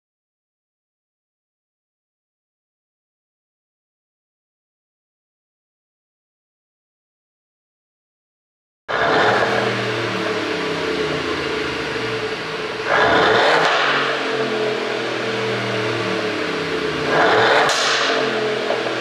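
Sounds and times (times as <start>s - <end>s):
car engine idling and revving: 8.9s - 19.0s.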